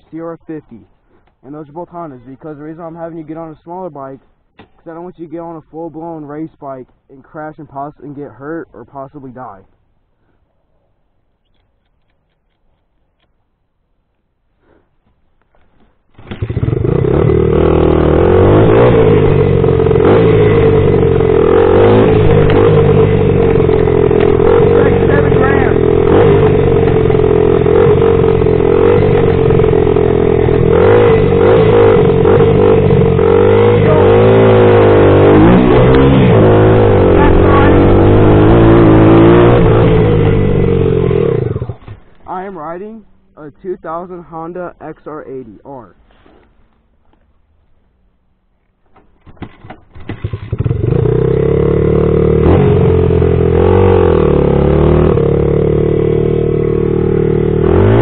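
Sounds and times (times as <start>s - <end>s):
dirt bike engine revving: 16.1s - 45.1s, 49.2s - 58.0s.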